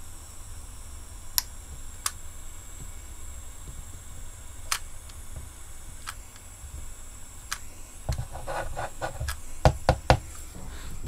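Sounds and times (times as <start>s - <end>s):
steady low hum: 0.0s - 11.0s
sharp clicks on plastic: 4.7s - 6.5s, 7.5s - 8.3s.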